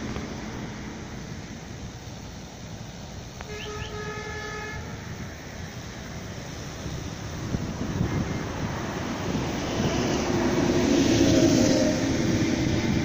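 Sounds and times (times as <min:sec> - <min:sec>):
distant horn: 0:03.4 - 0:05.2
wind on microphone: 0:04.9 - 0:13.0.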